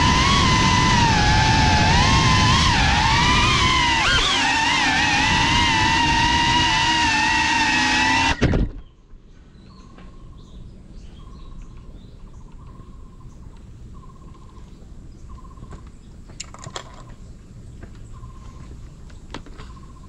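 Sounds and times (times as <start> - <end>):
bird chirps: 8.8 - 20.0.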